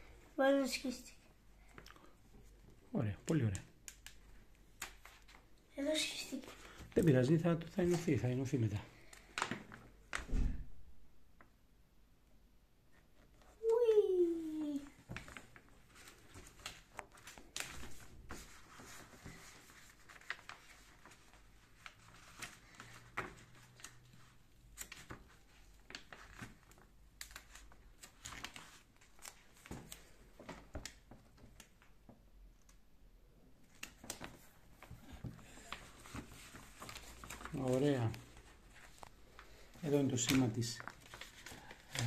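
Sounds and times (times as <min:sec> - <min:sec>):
paper rustling and crinkling: 0:01.6 - 0:10.4, 0:13.2 - 0:32.0, 0:33.6 - 0:42.0
small clicks and taps: 0:03.2 - 0:04.2.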